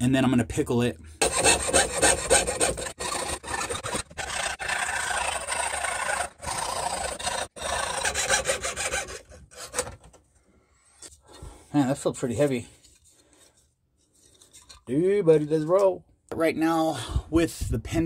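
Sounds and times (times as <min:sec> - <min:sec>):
hand tool rasping metal: 0:01.2 - 0:09.9.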